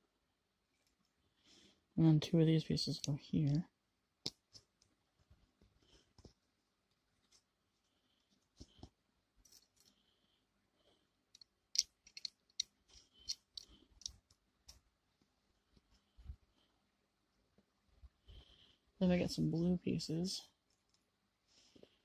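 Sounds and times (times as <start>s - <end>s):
plastic bricks clicking: 11.3s - 14.8s.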